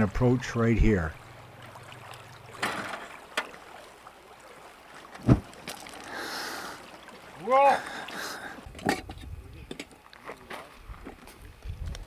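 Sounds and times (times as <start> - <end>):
wind on microphone: 10.8 - 12.0.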